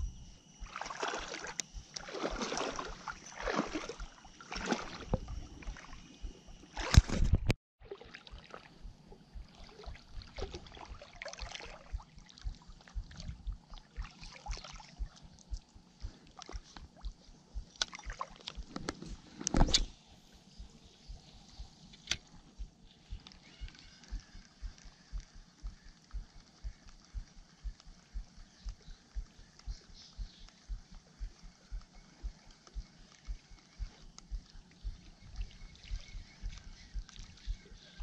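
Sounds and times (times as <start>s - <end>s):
water sloshing and splashing: 0.4s - 20.0s.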